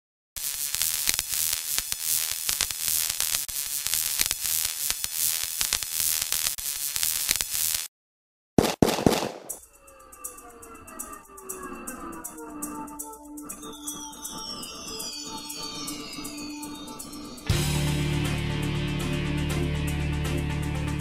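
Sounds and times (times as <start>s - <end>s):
crackling static noise: 0.4s - 7.9s
sharp hits: 8.6s - 9.6s
music with falling tones: 10.1s - 21.0s.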